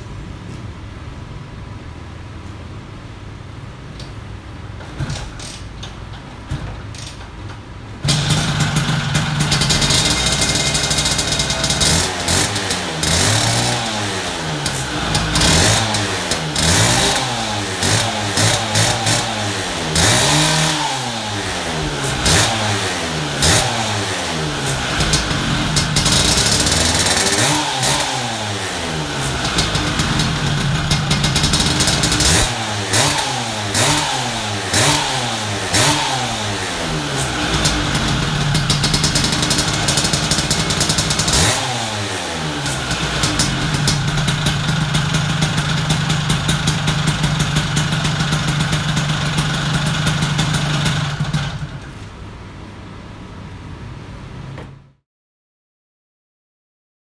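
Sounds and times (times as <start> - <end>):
scooter engine revving and idling: 8.0 - 52.0.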